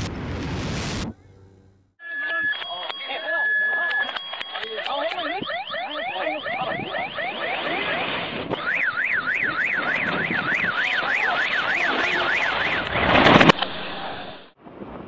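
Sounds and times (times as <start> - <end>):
reversed explosion rush: 0.0 - 1.2, 6.6 - 15.0
car alarm warbling: 2.0 - 14.4.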